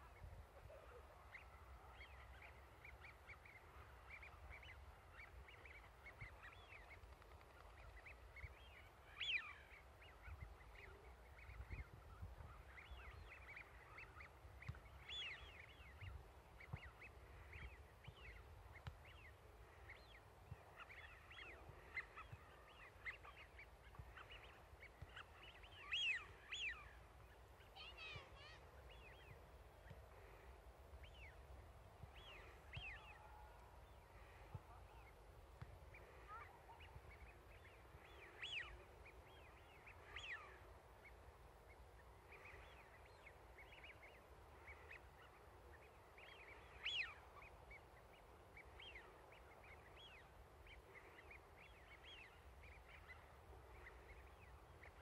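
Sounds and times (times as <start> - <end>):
ducks whistling calls: 7.6 - 27.0, 46.2 - 47.9.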